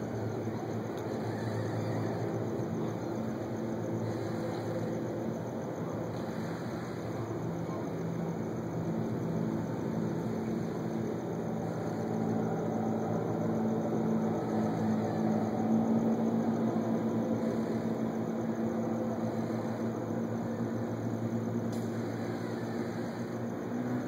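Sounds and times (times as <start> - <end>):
machinery humming: 0.0 - 24.0.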